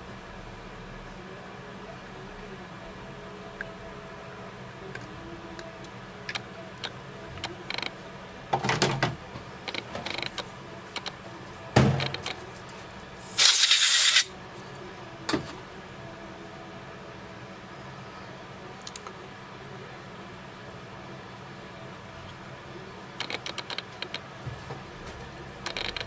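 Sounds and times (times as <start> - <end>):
steady low hum: 0.0 - 13.4, 14.2 - 26.0
short hiss: 13.2 - 14.3.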